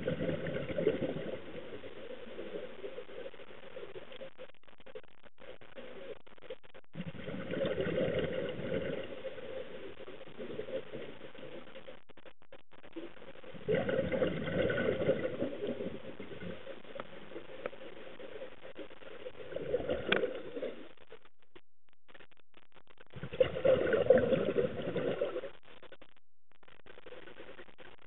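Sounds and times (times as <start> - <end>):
underwater breath bubbles gurgling: 0.0 - 4.0, 6.9 - 11.8, 13.0 - 21.0, 23.2 - 25.5.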